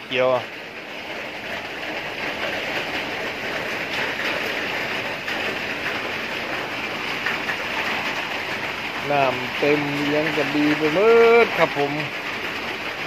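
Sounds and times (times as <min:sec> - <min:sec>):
heavy rain on metal roof: 0:00.0 - 0:13.0.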